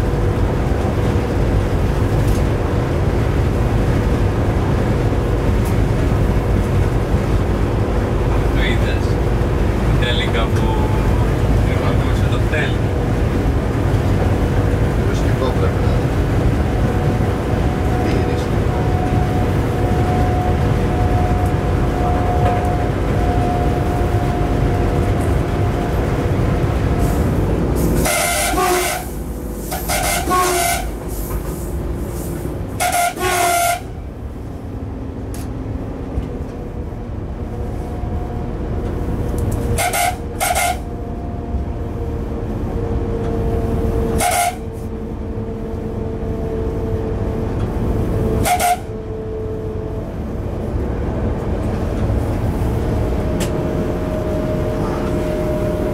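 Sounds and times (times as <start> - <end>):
electric locomotive running: 0.0 - 55.9
locomotive horn blasts: 27.8 - 31.0, 32.8 - 34.0, 39.7 - 41.0, 44.1 - 44.9, 48.2 - 49.8.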